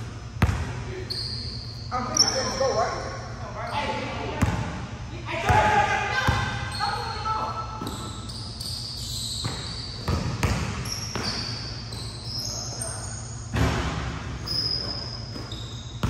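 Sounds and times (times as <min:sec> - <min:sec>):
basketball bouncing on court: 0:00.0 - 0:00.8, 0:04.4 - 0:04.8, 0:05.4 - 0:06.6, 0:09.4 - 0:12.1, 0:13.6 - 0:16.0
short high squeaks: 0:07.8 - 0:10.1, 0:14.4 - 0:16.0.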